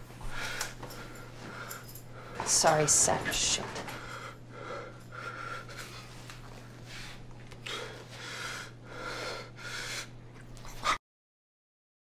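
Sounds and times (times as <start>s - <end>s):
man breathing heavily: 0.0s - 2.5s, 3.8s - 10.2s
steady low hum: 0.0s - 11.0s.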